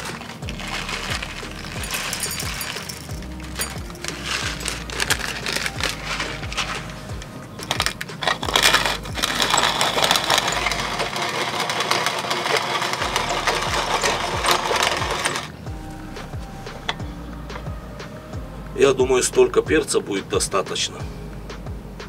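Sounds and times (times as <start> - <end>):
pepper grinder crunching: 0.0 - 15.6.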